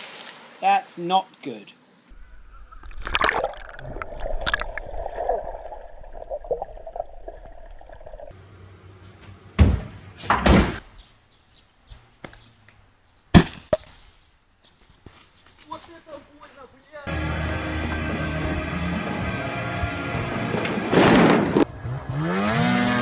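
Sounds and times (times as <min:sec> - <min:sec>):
underwater rushing and gurgling: 0:02.5 - 0:08.3
loud crashes: 0:20.0 - 0:21.7.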